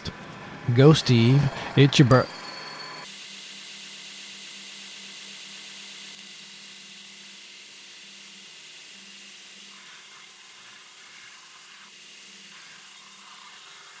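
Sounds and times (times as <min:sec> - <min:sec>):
low hum: 0:00.0 - 0:03.0.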